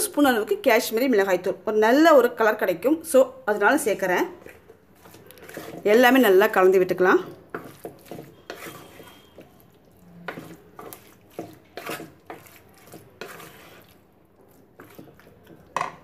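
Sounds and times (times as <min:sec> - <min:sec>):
wooden spoon stirring wet mix: 0:03.2 - 0:16.0
spoon knocking clay pot: 0:10.2 - 0:13.4, 0:14.8 - 0:16.0.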